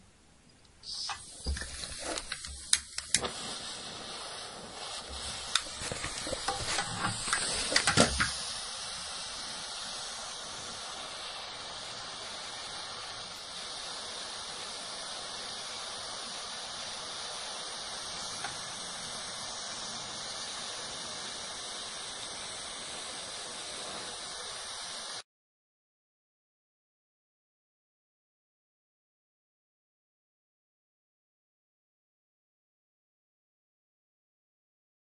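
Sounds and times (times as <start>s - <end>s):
gas hissing from radiator valve: 0.8s - 25.2s
valve clicks and knocks: 1.0s - 3.4s, 5.1s - 8.6s.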